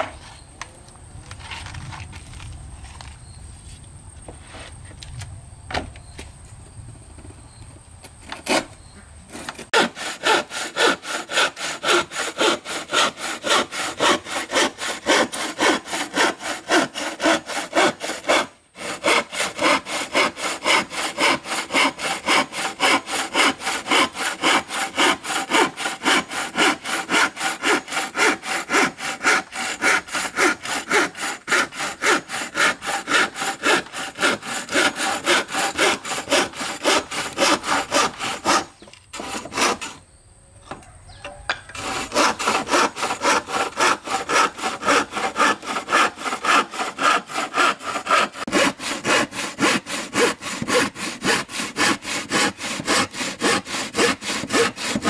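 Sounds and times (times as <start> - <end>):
hand saw cutting wood: 8.2 - 40.0, 41.3 - 55.0.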